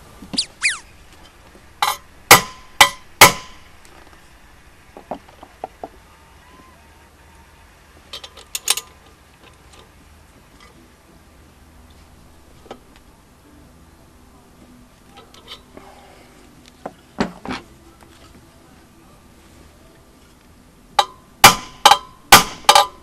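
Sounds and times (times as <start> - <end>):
hammer blows on metal: 1.8 - 3.7, 21.0 - 23.0.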